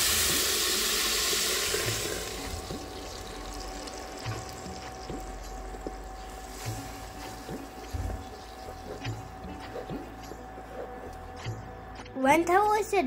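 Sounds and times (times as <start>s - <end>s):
paste sizzling in hot oil: 0.0s - 9.4s.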